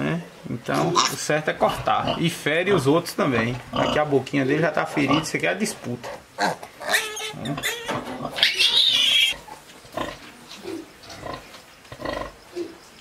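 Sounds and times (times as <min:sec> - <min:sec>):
piglets grunting: 0:00.7 - 0:04.2, 0:06.0 - 0:12.8
piglets squealing: 0:00.8 - 0:02.2, 0:06.1 - 0:10.1.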